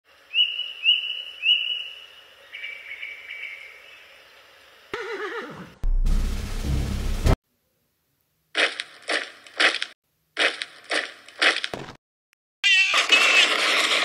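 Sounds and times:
horse whinnying: 5.0s - 5.8s.

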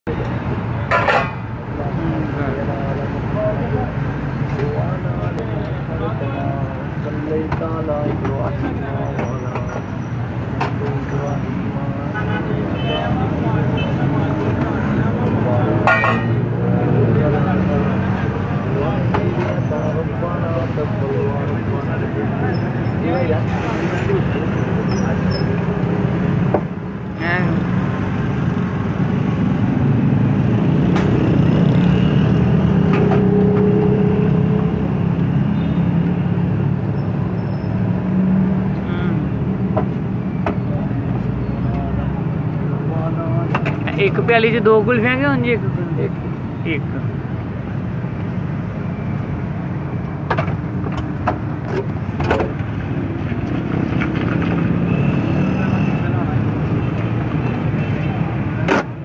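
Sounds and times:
street traffic rumble: 0.0s - 59.0s
metal utensils clinking on pots: 15.8s - 16.4s.

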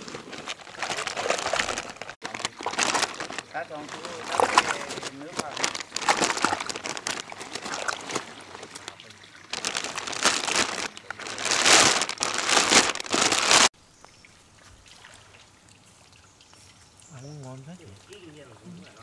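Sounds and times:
water sloshing: 0.0s - 13.6s
plastic bag crinkling: 0.0s - 13.7s.

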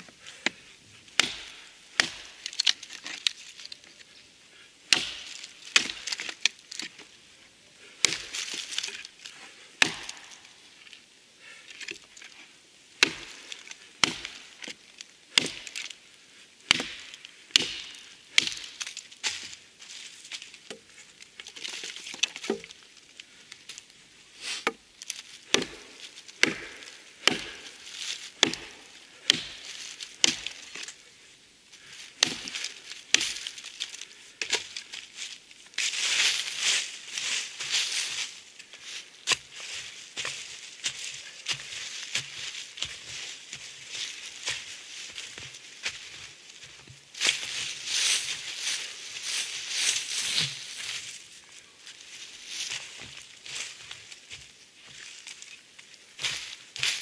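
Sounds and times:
hatchet chopping wood: 1.2s - 2.7s, 4.9s - 6.4s, 9.8s - 10.3s, 13.0s - 13.4s, 14.0s - 14.6s, 15.3s - 15.8s, 16.6s - 18.8s, 22.3s - 22.7s, 25.4s - 30.6s, 32.2s - 33.4s.

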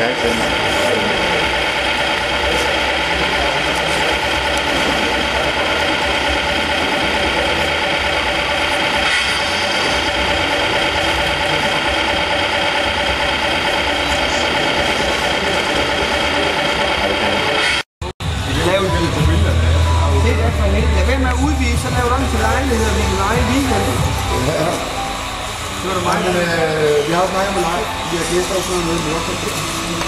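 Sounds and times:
model truck motor idling: 0.0s - 17.6s
steady whining tones: 0.0s - 30.0s.

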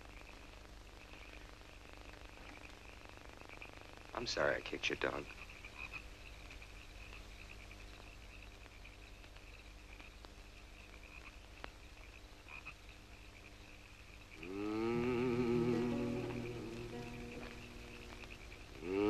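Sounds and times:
frogs calling: 2.5s - 19.0s
low soundtrack hum: 14.4s - 19.0s
rising wavering musical tone: 14.4s - 19.0s.

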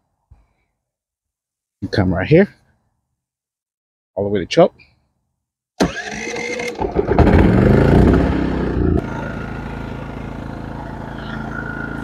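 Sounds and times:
generator engine starting and running: 5.8s - 12.0s.

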